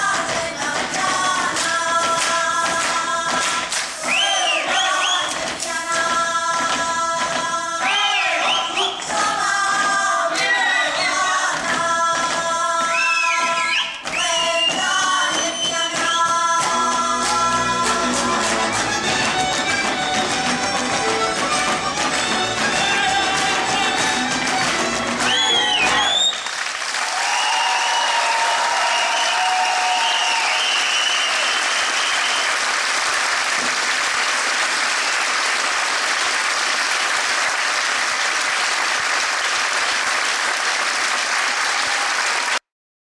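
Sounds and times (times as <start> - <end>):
folk band with fiddles: 16.6 - 26.1
audience applauding: 18.2 - 42.7
person whooping: 27.1 - 31.6.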